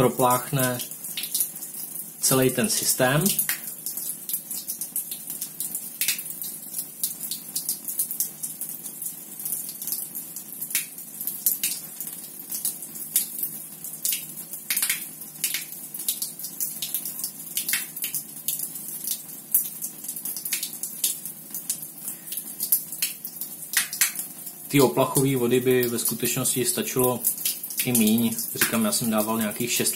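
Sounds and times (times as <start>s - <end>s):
water stream splashing on tiled floor: 3.3s - 24.6s
tap spitting and crackling: 22.7s - 24.3s, 27.2s - 29.0s.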